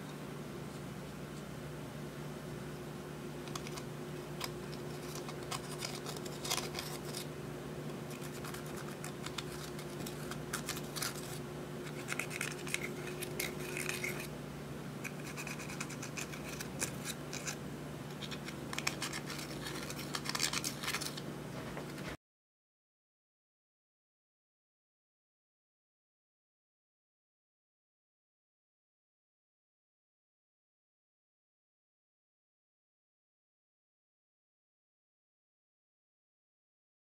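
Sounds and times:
steady low hum: 0.0s - 22.2s.

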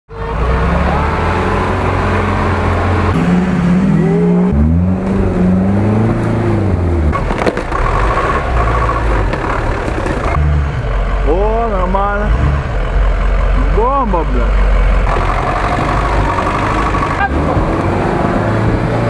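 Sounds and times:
truck engines revving: 0.1s - 19.0s.

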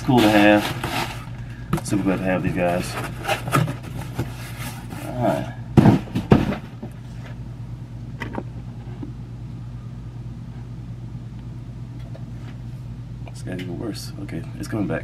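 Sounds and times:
rustling handling noise: 0.0s - 5.5s
steady low hum: 0.0s - 15.0s.

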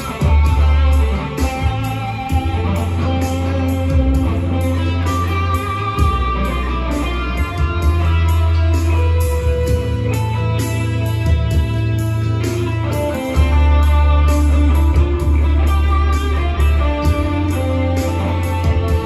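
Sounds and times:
bass: 0.0s - 19.0s
electric guitar lead: 0.0s - 19.0s
steady drum beat: 0.0s - 19.0s.

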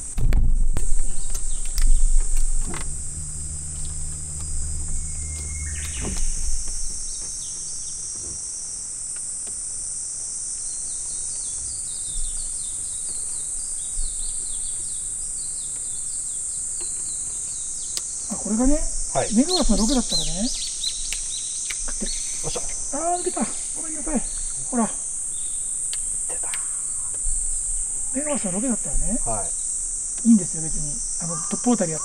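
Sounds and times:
low rumbles: 0.0s - 8.1s
low hum: 0.0s - 8.3s, 18.2s - 31.1s
insects droning: 0.0s - 32.0s
birds chirping: 0.8s - 8.3s, 10.7s - 32.0s.

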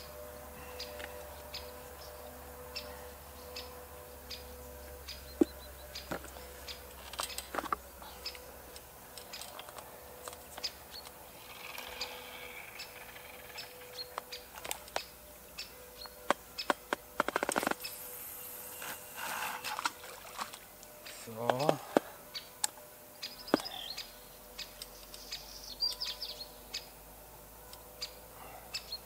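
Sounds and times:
faint bird chirps: 23.2s - 27.0s.

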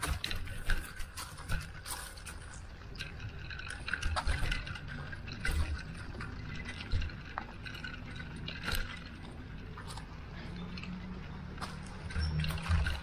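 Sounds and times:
bicycle knocks: 0.0s - 10.2s
bicycle clicks and rattles: 0.0s - 13.0s.

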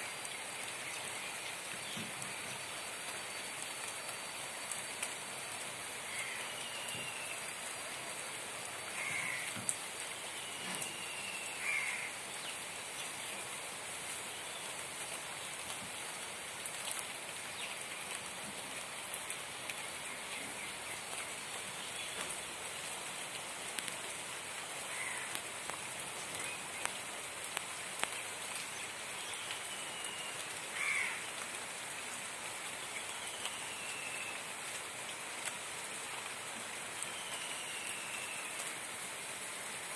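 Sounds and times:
rain falling on leaves: 0.0s - 39.9s
water drips: 23.3s - 24.2s, 24.9s - 31.6s.

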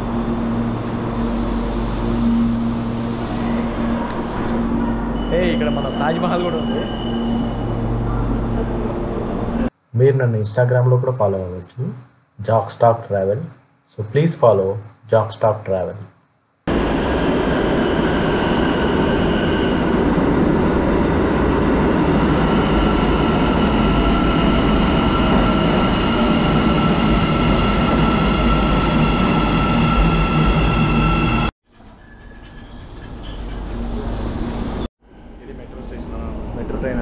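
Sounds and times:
high whining tones: 0.0s - 9.7s
metro train rumbling in tunnel: 0.0s - 9.8s, 16.7s - 37.0s.

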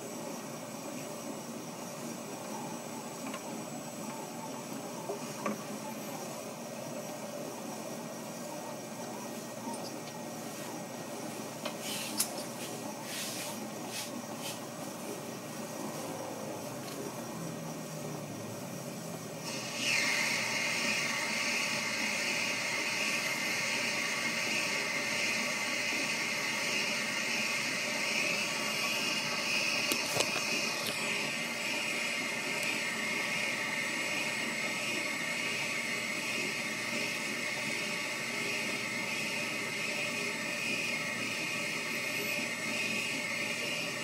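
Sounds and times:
cutting tool hissing on plastic: 11.7s - 14.7s, 19.4s - 44.0s
lathe running: 18.6s - 44.0s.

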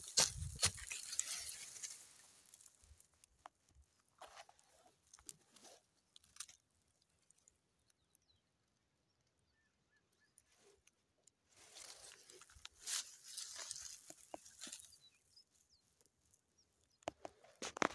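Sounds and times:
dried palm fronds rustling: 0.0s - 6.6s, 11.5s - 15.2s.

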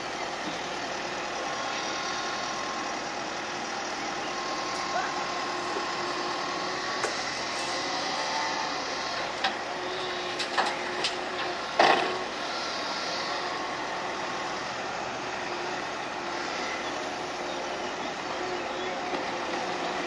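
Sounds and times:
excavator engine running: 0.0s - 20.0s.

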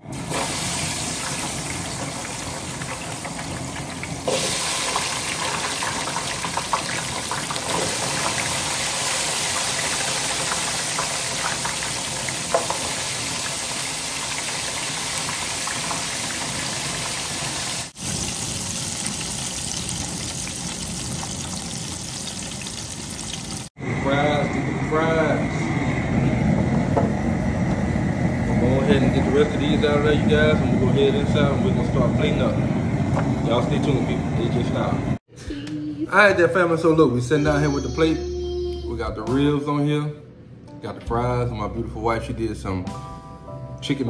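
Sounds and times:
oil sizzling while deep-frying: 0.0s - 23.8s
oil popping: 0.1s - 23.7s.

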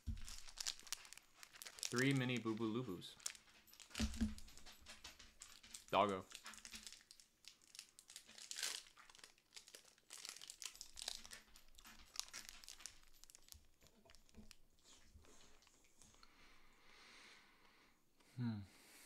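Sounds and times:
plastic candy wrapper crinkling: 0.0s - 16.3s.

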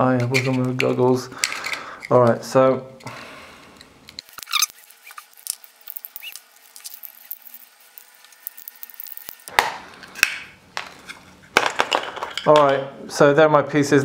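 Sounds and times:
plastic parts clattering: 0.1s - 2.3s, 4.2s - 12.9s.

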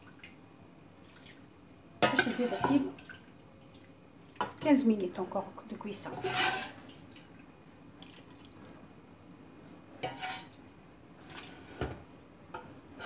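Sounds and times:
metal ladle clinking on pots: 2.0s - 2.9s.

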